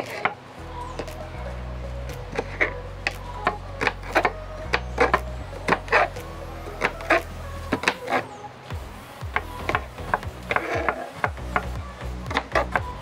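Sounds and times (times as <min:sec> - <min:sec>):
background music with bass line: 0:00.6 - 0:08.0, 0:08.7 - 0:13.0.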